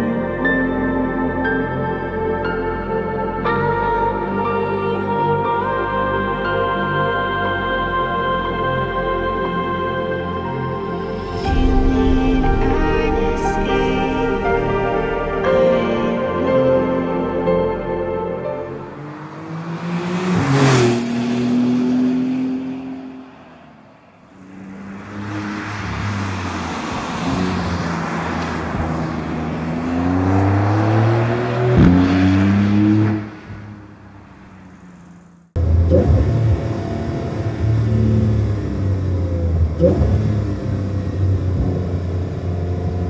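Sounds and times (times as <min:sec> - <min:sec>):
car engine accelerating: 0:10.3 - 0:43.0.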